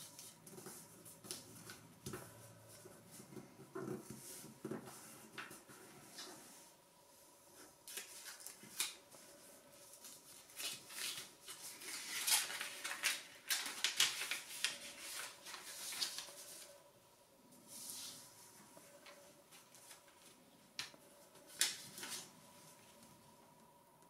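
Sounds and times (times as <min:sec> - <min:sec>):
paper rustling and crinkling: 0:07.6 - 0:16.8, 0:17.7 - 0:23.2.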